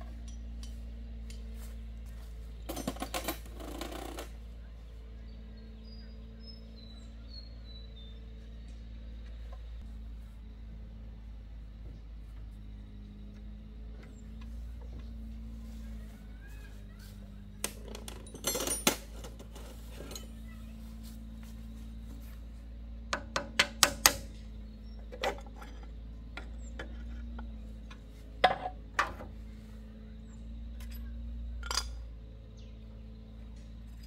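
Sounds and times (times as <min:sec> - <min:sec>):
metal tools clinking and clanking: 0:00.0 - 0:01.5, 0:02.6 - 0:04.3, 0:17.6 - 0:20.6, 0:25.0 - 0:29.3, 0:30.7 - 0:32.1
steady low hum: 0:00.0 - 0:34.0.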